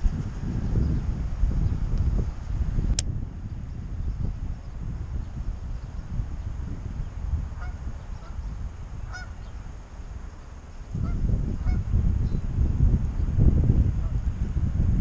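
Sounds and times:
wind rumbling on microphone: 0.0 - 15.0
geese honking: 7.6 - 8.4, 9.1 - 9.5, 11.0 - 11.8.

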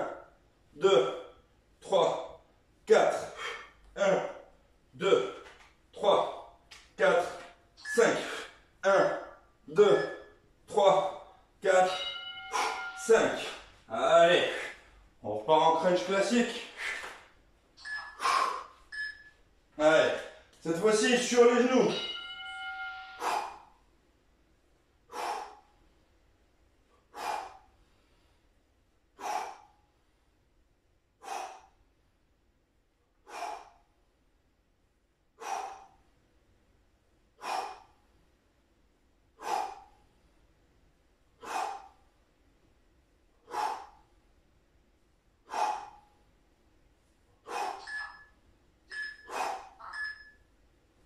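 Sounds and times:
man exhaling forcefully: 25.1 - 25.6, 27.1 - 27.6, 35.4 - 36.0, 39.4 - 39.9, 41.4 - 42.0, 43.5 - 44.0, 47.4 - 47.9.

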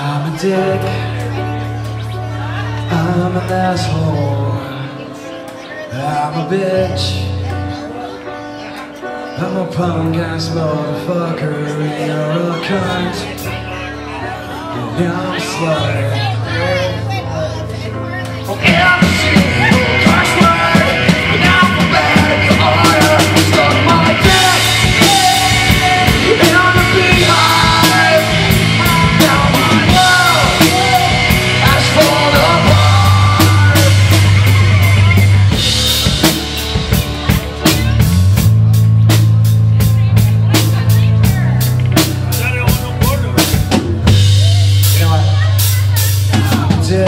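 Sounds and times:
bass guitar: 0.0 - 47.0
electric guitar: 0.0 - 47.0
rock band playing: 0.0 - 47.0
drum kit: 18.0 - 47.0.

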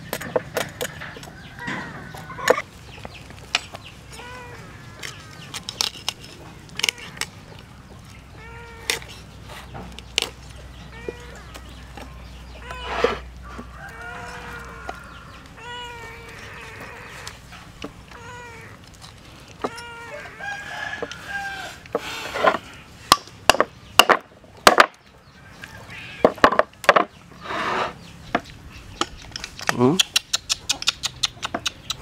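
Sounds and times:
animal calls: 10.6 - 22.9, 29.1 - 32.0.

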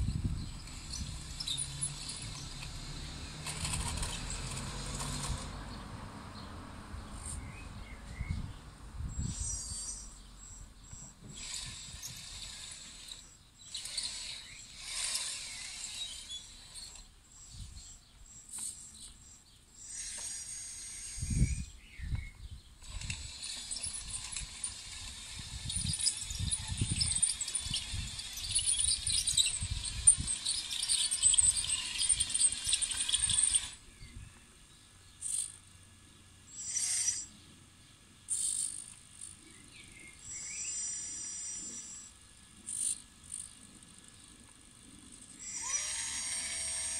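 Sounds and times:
model loader gear and track noise: 0.0 - 46.9
electric motor whine: 22.8 - 33.9, 38.3 - 46.9.

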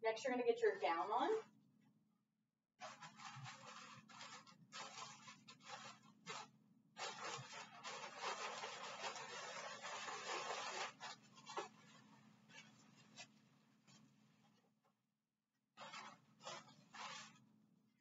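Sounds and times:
disposable gown rustling: 2.8 - 14.0, 15.8 - 17.4.

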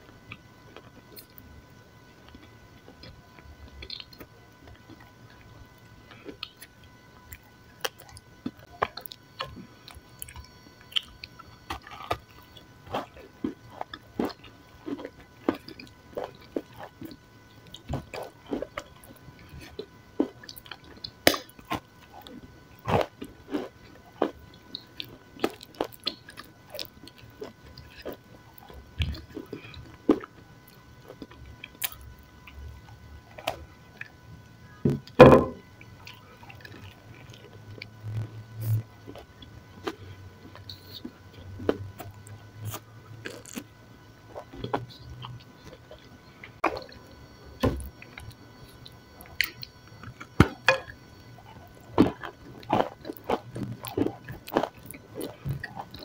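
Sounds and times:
chewing crunches: 2.2 - 34.2, 35.8 - 56.0.

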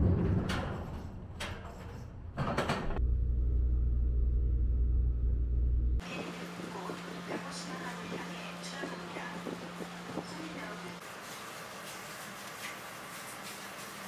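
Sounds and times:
loud low rumble: 3.0 - 10.3.

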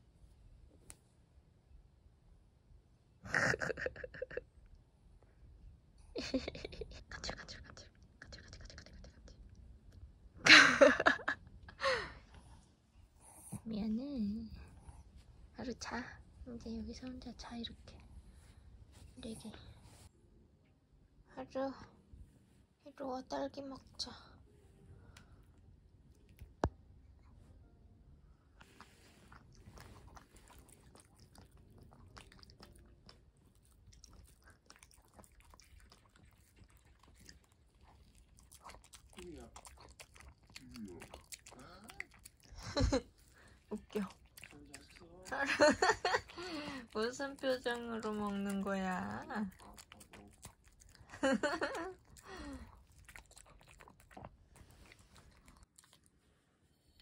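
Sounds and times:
dog chewing and crunching: 28.7 - 56.2.

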